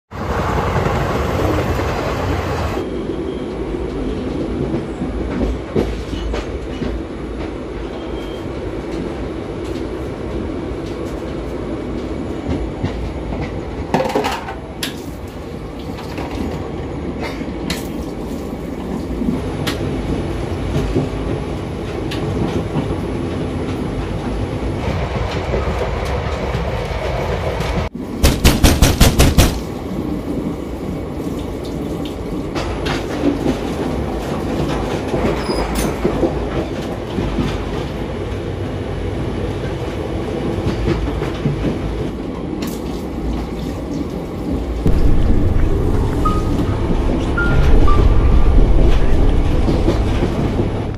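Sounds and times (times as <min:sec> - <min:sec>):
train wheels rumbling on track: 0:00.1 - 0:50.9
wheels clacking over rail joints: 0:12.4 - 0:15.1.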